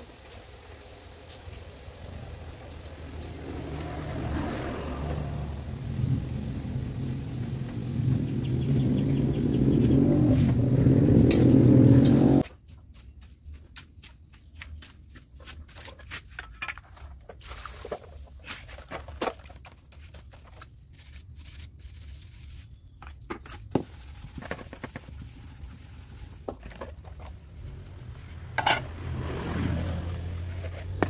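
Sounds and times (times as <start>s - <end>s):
metal pans and bowls clinking: 28.6s - 29.0s.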